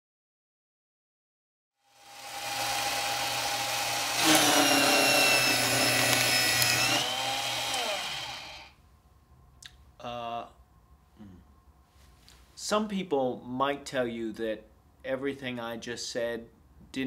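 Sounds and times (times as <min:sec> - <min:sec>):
paper shredder motor whine: 0:01.8 - 0:08.7
paper shredding: 0:02.0 - 0:08.7.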